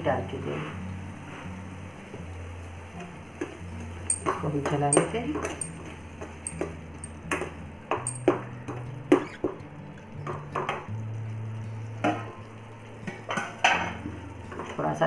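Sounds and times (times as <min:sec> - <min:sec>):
metal clank: 0:04.1 - 0:05.8, 0:08.1 - 0:08.4.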